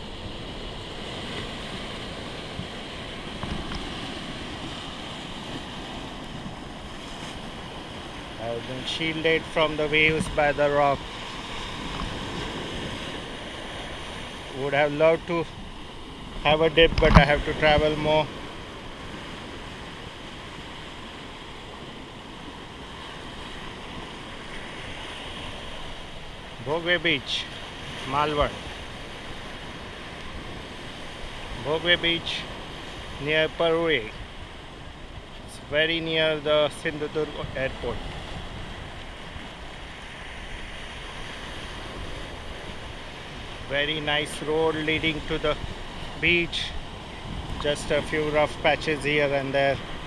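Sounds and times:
sea surf washing around rocks: 0.0s - 50.0s
waves breaking on shore: 0.0s - 50.0s
wind buffeting microphone: 9.0s - 14.6s, 37.2s - 49.0s.

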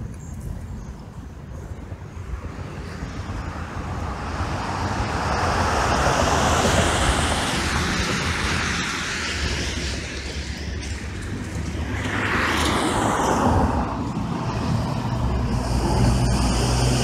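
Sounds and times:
wind rumble on microphone: 0.0s - 17.0s
car passing by: 2.8s - 17.0s.

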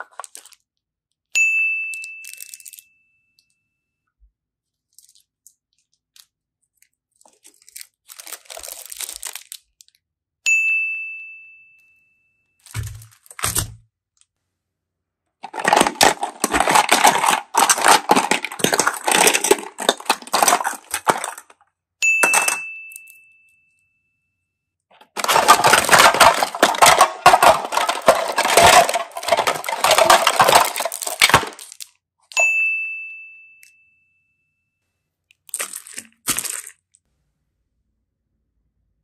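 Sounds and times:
plastic items clattering in basket: 0.0s - 0.6s, 7.2s - 9.6s, 12.6s - 13.8s, 15.4s - 21.6s, 22.2s - 22.6s, 24.9s - 31.9s, 35.5s - 37.0s.

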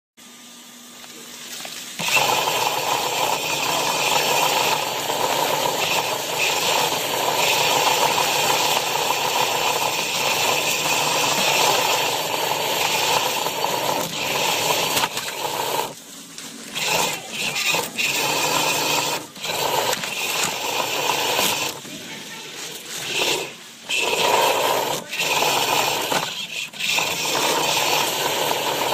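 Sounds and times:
robot motors and gears rattling: 1.4s - 16.0s, 16.6s - 28.9s.

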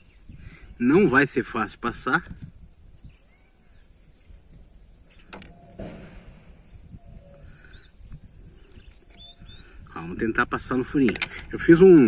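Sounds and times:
small bird chirping: 0.0s - 11.1s.

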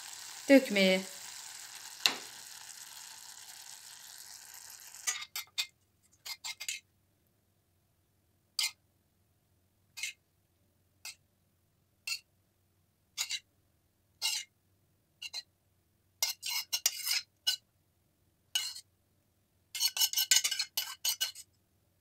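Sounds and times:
metal spoon scraping a pan: 0.0s - 6.9s, 8.6s - 8.8s, 10.0s - 10.2s, 12.0s - 12.3s, 13.2s - 13.5s, 14.2s - 14.5s, 15.2s - 15.5s, 16.2s - 17.6s, 18.5s - 18.9s, 19.7s - 21.5s.

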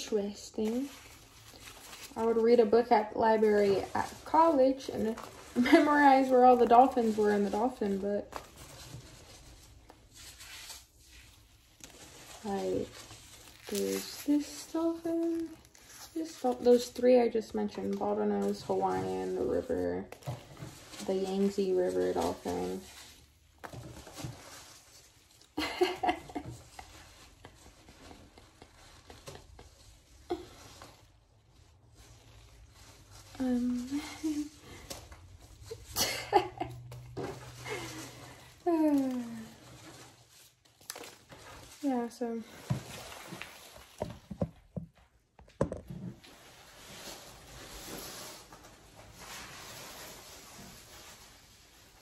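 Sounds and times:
packing peanuts rustling: 0.0s - 44.4s
woman laughing: 25.6s - 27.0s, 35.8s - 36.9s.

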